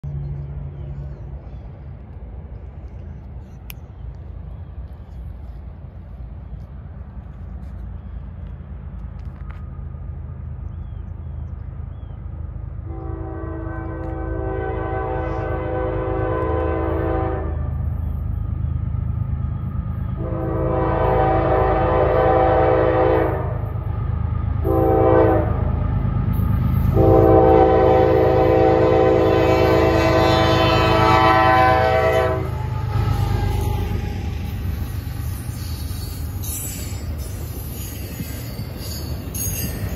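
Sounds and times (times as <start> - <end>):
low rumble of train: 0.0 - 39.9
locomotive air horn blowing: 12.8 - 17.7, 20.2 - 23.6, 24.6 - 25.6, 26.9 - 34.0.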